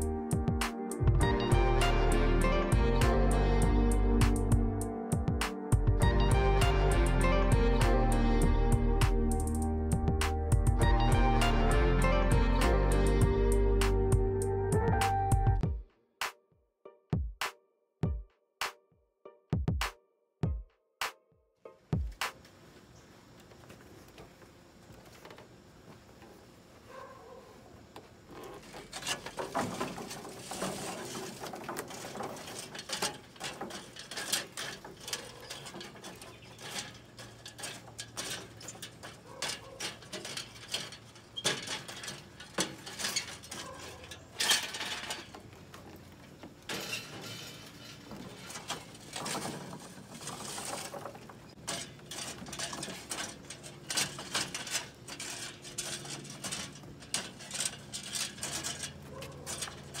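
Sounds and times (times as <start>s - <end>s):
metal chimney scraping on grill: 0.0s - 15.6s, 28.2s - 60.0s
charcoal briquettes clinking and rattling: 28.2s - 60.0s.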